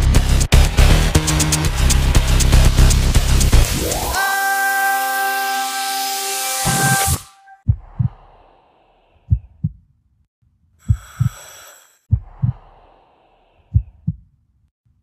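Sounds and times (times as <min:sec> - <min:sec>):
heartbeat thumps: 0:07.7 - 0:08.4, 0:09.3 - 0:09.9, 0:10.9 - 0:11.4, 0:12.1 - 0:12.8, 0:13.7 - 0:14.3.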